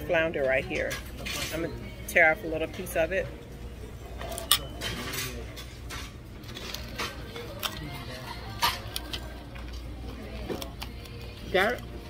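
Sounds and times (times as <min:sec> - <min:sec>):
faint background voices: 0:00.0 - 0:12.0
fork clinking against a plate: 0:04.3 - 0:06.2.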